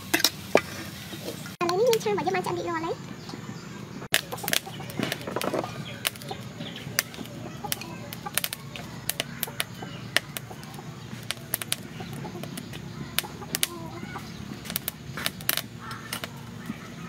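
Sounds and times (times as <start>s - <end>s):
chopsticks clicking on metal tray: 7.0s - 13.8s.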